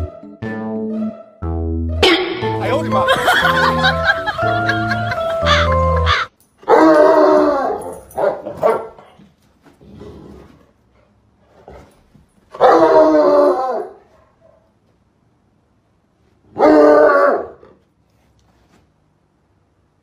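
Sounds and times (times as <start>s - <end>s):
music: 0.0s - 6.3s
dog barking: 6.6s - 9.1s, 12.6s - 14.7s.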